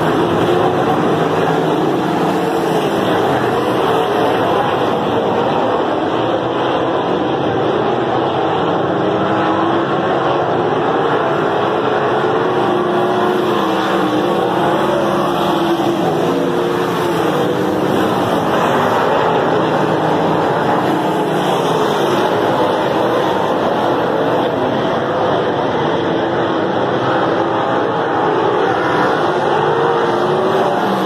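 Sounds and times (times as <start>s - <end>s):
racing car engines at high revs: 0.0s - 31.0s.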